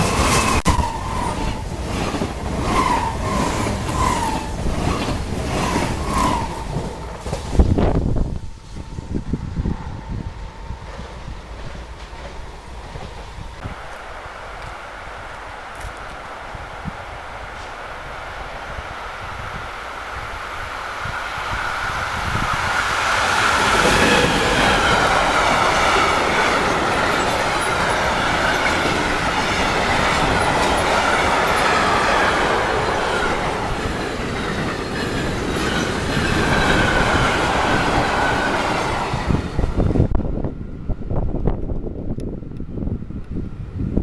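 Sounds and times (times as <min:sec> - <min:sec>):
train wheels rumbling on rails: 0:00.0 - 0:44.0
high wheel squeal: 0:23.2 - 0:32.1.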